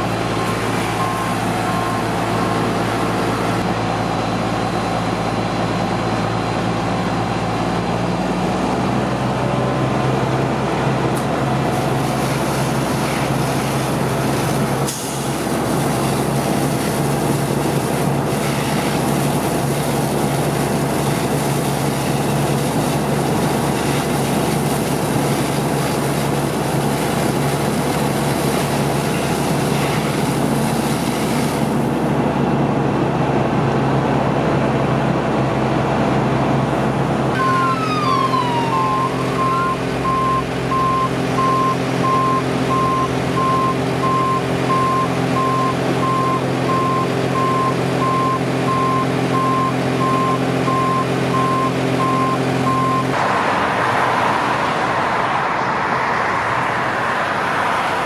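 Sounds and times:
diesel engine running: 0.0s - 58.0s
constant hiss of water pumping: 10.5s - 32.3s.

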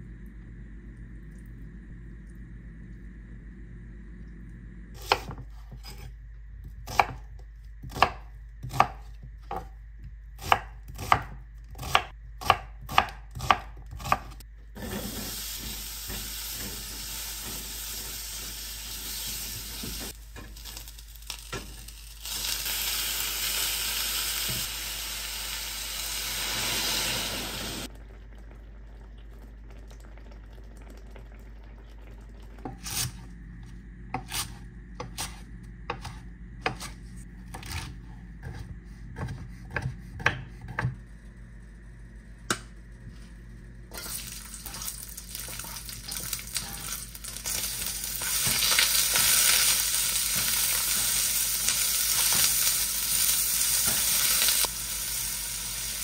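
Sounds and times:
knife chopping on wooden board: 6.9s - 9.8s, 10.4s - 14.4s, 34.1s - 41.0s
onion sizzling in frying pan: 14.8s - 27.9s, 43.9s - 56.0s.

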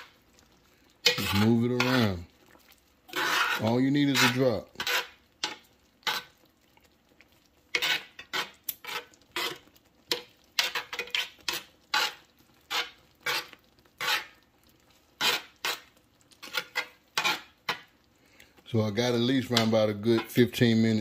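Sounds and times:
metal spoon scraping a pan: 0.0s - 0.2s, 1.0s - 2.3s, 3.1s - 6.5s, 7.7s - 17.9s, 19.4s - 20.6s.

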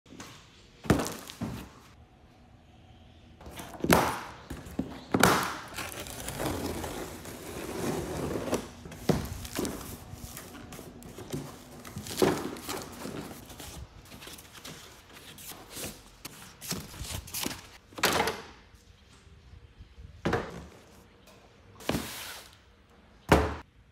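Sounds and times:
cardboard rustling and scraping: 4.5s - 17.8s.

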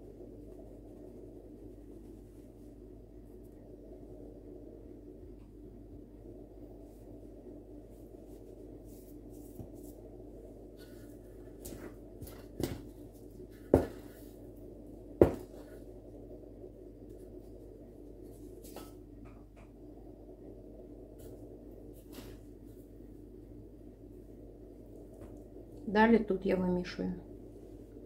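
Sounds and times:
steady low hum: 0.0s - 28.0s
hands brushing through flour: 7.8s - 14.5s.

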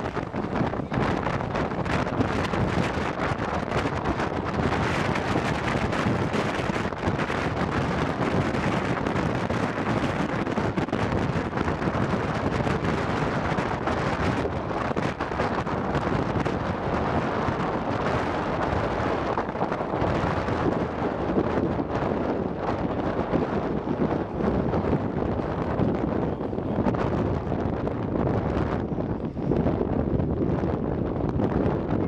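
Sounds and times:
train running on rails: 0.0s - 32.0s
wind buffeting microphone: 0.0s - 32.0s.

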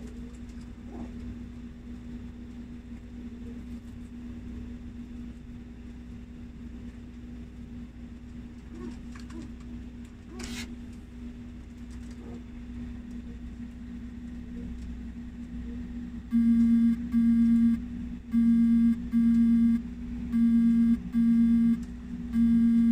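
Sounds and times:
electrical hum: 0.0s - 22.9s
electronic alarm beeping: 16.3s - 21.8s, 22.4s - 22.9s.

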